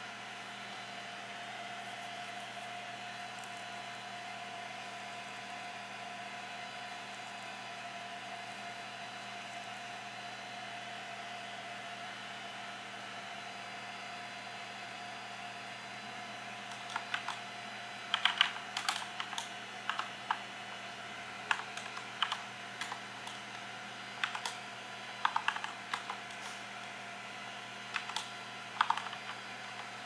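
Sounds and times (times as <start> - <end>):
steady electrical hum: 0.0 - 30.0
keyboard keystroke clicks: 16.7 - 17.4, 18.1 - 20.4, 21.5 - 23.6, 24.2 - 24.6, 25.2 - 26.6, 27.9 - 29.9.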